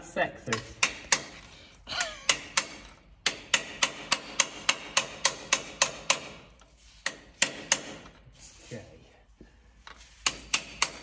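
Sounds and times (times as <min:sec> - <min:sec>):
hand tool clicking on metal: 0:00.5 - 0:06.4.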